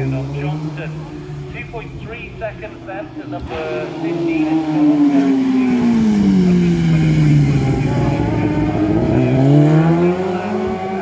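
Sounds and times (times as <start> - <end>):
motorcycle engine braking and accelerating: 3.4 - 11.0.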